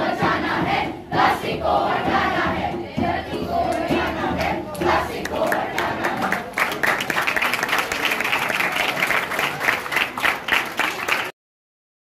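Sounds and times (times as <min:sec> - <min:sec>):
audience applauding: 0:05.2 - 0:11.4.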